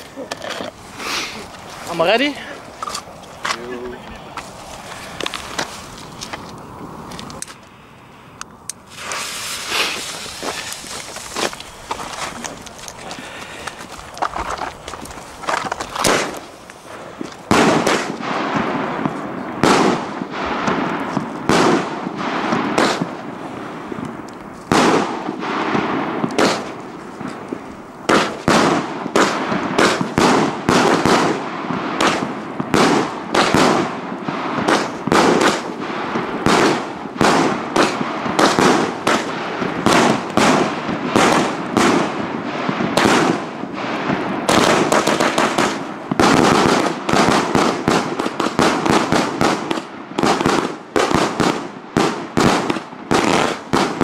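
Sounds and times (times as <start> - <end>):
firework shells bursting: 8.4 - 54.0.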